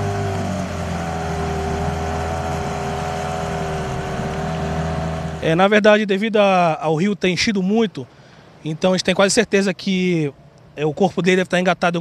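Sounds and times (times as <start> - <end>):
boat motor running: 0.0 - 5.8.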